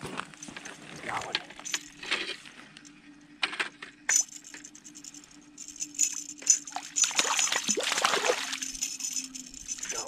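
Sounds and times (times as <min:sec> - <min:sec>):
fishing reel clicking and rattling: 0:08.6 - 0:10.0.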